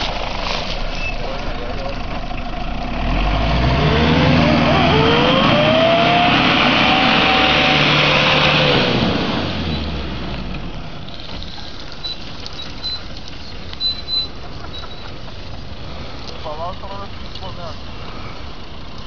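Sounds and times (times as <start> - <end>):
pickup engine revving: 0.0 - 11.5.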